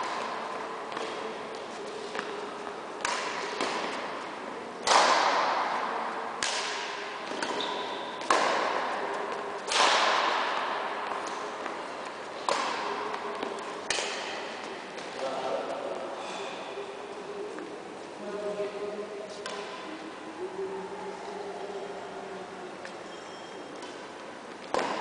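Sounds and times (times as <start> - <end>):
badminton rackets striking shuttlecock: 3.0 - 4.1, 4.8 - 5.8, 6.4 - 15.1, 24.7 - 25.0.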